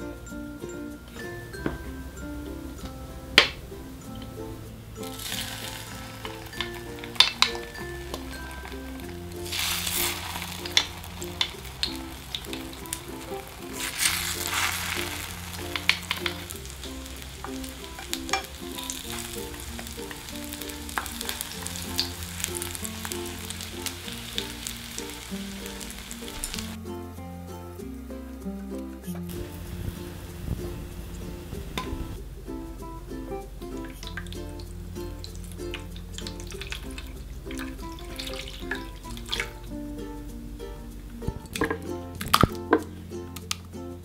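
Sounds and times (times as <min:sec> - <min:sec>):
food frying in oil: 0:05.0 - 0:26.8, 0:33.7 - 0:39.7.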